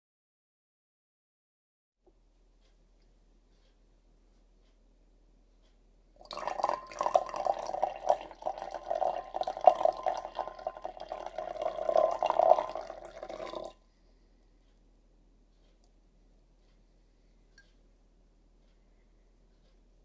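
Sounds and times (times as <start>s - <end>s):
liquid pouring into a glass beaker: 6.2s - 13.8s.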